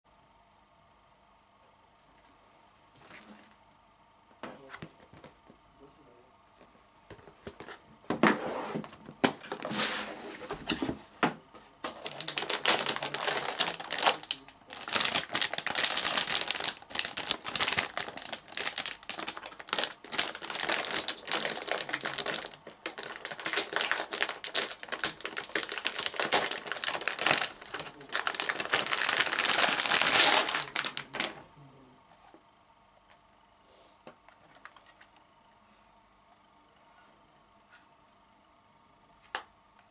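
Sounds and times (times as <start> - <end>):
metallic plastic bag crinkling: 11.9 - 31.4.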